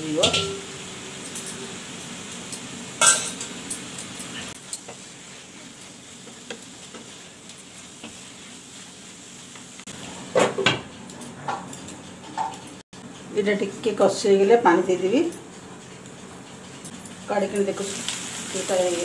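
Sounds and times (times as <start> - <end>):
food sizzling in a pan: 0.0 - 10.9, 17.1 - 19.0
wooden spatula scraping a pan: 4.6 - 10.3.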